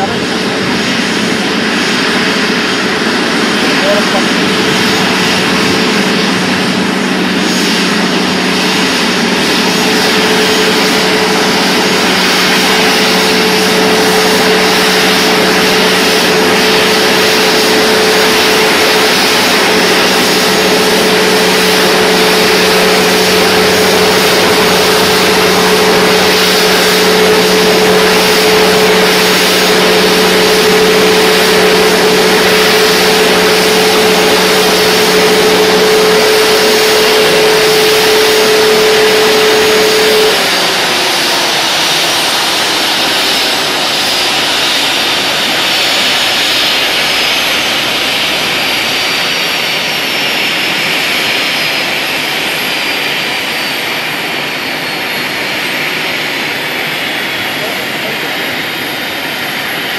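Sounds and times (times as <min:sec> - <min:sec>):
jet airliner idling: 0:00.0 - 0:59.9.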